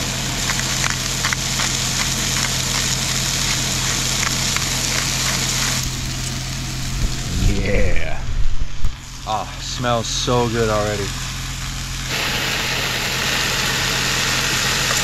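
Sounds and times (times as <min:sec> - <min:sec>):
vegetables sizzling in a pan: 0:00.0 - 0:07.3, 0:09.0 - 0:15.0
crackles and pops: 0:00.0 - 0:07.6.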